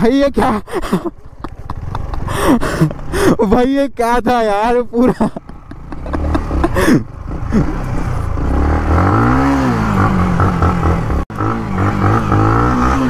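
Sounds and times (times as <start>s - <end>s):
motorcycle engine revving: 5.4s - 13.0s.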